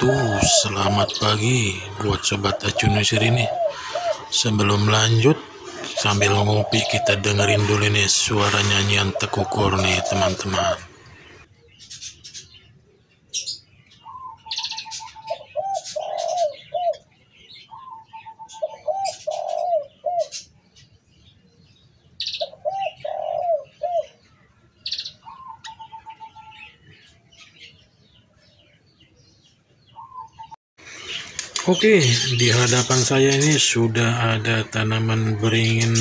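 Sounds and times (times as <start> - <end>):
dove cooing: 0.0 - 10.8, 14.0 - 20.5, 22.2 - 24.2, 25.1 - 26.8
high bird chirps: 22.1 - 36.0.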